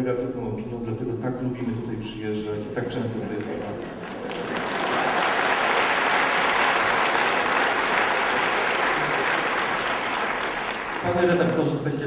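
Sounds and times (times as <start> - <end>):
audience applauding: 3.3 - 11.7.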